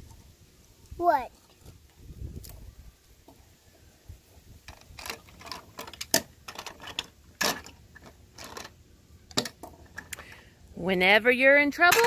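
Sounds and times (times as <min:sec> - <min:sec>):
plastic toys clattering on table: 0:04.7 - 0:10.1.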